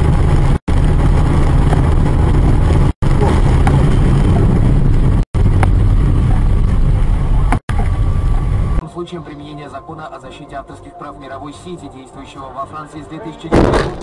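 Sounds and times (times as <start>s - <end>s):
vehicle and road rumble: 0.0s - 9.8s, 13.5s - 14.0s.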